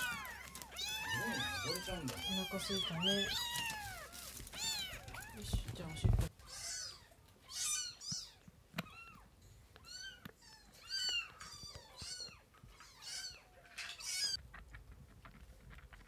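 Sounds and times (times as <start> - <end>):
kitten mewing: 0.0 - 9.1.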